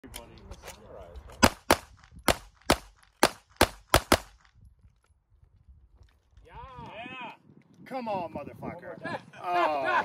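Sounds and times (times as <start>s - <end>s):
pistol shots: 1.4s - 4.4s.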